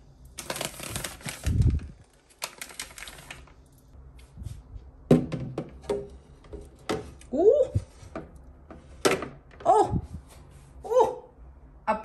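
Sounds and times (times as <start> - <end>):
plastic pack rustling: 0.4 - 3.7.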